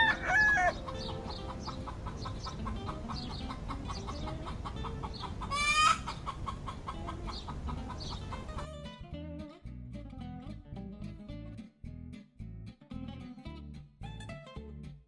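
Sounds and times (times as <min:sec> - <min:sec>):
hen squawk: 0:00.0 - 0:08.8
hen clucking: 0:00.0 - 0:08.9.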